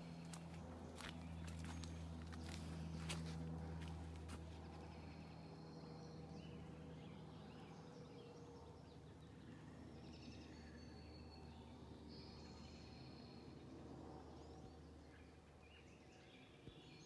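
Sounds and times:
birds chirping and trilling: 0:00.0 - 0:03.9
low steady hum: 0:00.0 - 0:17.0.

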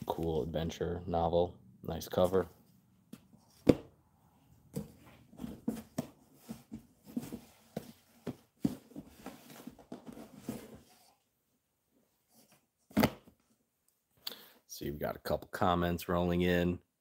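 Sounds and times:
books knocking and rustling: 0:03.1 - 0:04.0, 0:04.6 - 0:11.1, 0:12.9 - 0:13.4.

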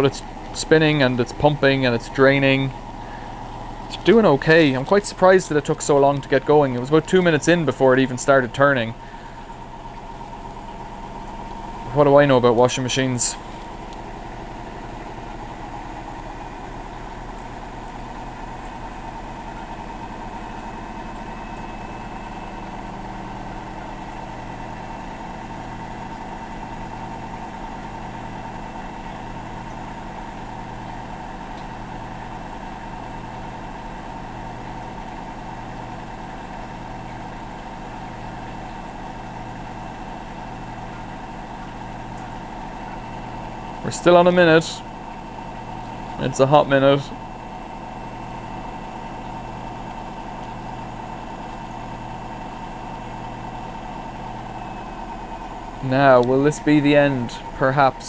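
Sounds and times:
low pulse: 0:00.0 - 0:27.4
washing machine spinning: 0:00.0 - 0:58.0.

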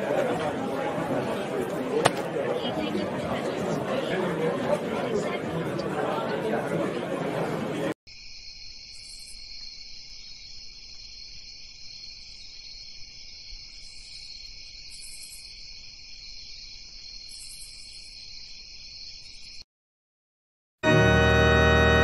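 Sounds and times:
crickets chirping: 0:08.1 - 0:19.6
higher insect chirping: 0:08.1 - 0:19.6.

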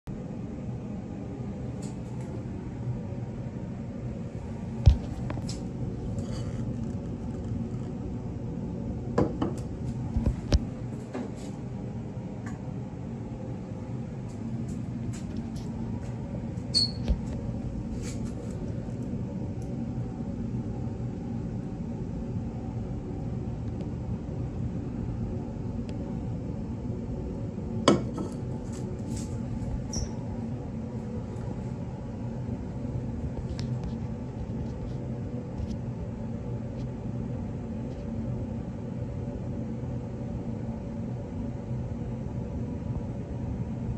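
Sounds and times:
low room hum: 0:00.0 - 0:43.9.

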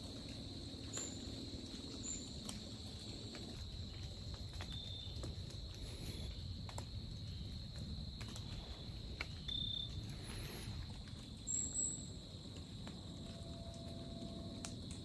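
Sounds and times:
insects droning: 0:00.0 - 0:15.0
faint clicks: 0:12.5 - 0:15.0.

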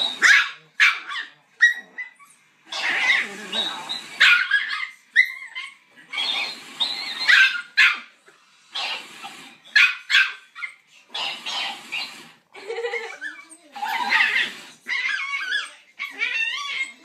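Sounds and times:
puppy barking and yipping: 0:00.1 - 0:03.3, 0:03.9 - 0:08.1, 0:08.8 - 0:12.1.

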